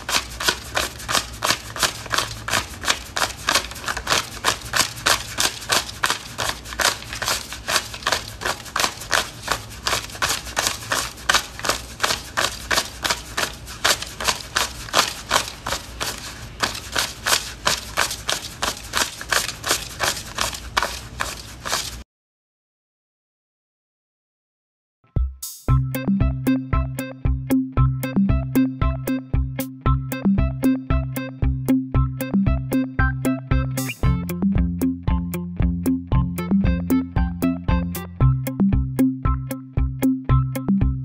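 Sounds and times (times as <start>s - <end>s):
banknotes counted by hand: 0.0s - 22.0s.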